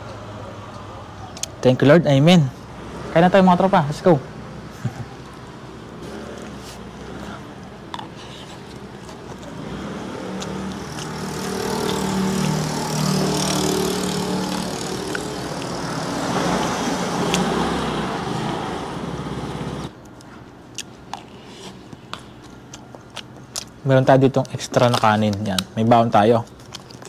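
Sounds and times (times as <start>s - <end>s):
motor scooter engine running: 10.2s - 18.6s.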